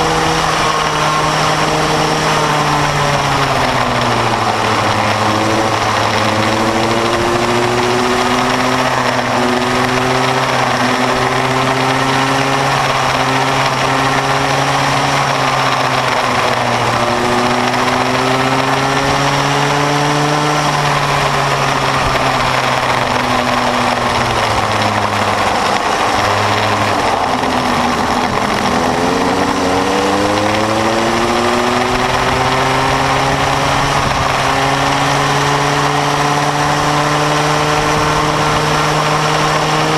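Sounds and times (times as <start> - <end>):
go-kart two-stroke engine: 0.0 - 39.9.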